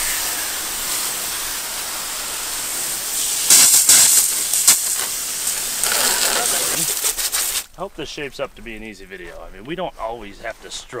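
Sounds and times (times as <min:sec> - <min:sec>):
high-pressure water spray hissing: 0:00.0 - 0:07.7.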